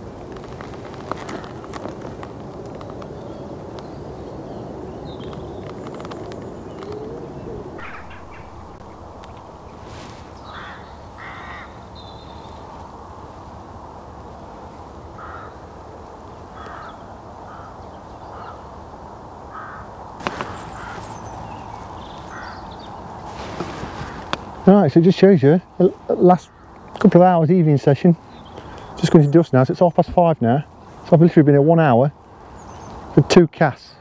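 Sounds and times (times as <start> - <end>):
low background rush: 0.0 - 34.0
crows cawing: 7.8 - 9.4, 10.4 - 11.9, 15.2 - 15.6, 16.5 - 18.7, 19.5 - 22.9, 23.9 - 24.4, 26.4 - 26.9.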